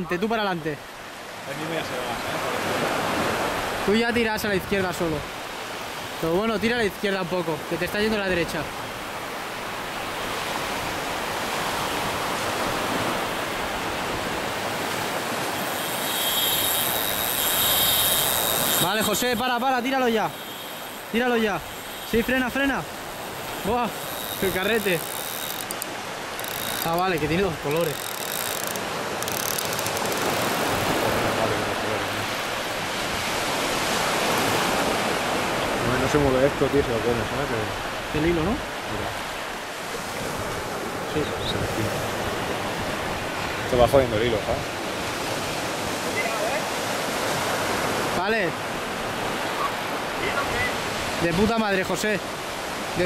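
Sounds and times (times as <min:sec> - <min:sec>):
waves breaking on beach: 0:00.0 - 0:53.0
high thin whine: 0:15.4 - 0:30.6
faint ticks: 0:15.6 - 0:19.4, 0:23.2 - 0:30.7.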